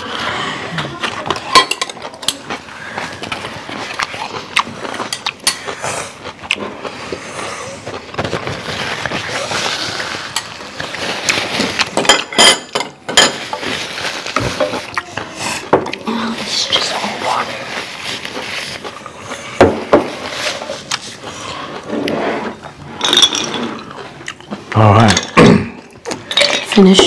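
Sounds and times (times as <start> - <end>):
cutlery clinking on plates: 1.3 - 2.4, 11.8 - 13.7.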